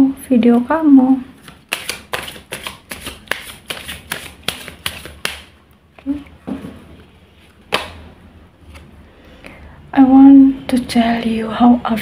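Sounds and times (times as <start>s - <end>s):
cards being shuffled: 1.4s - 6.4s.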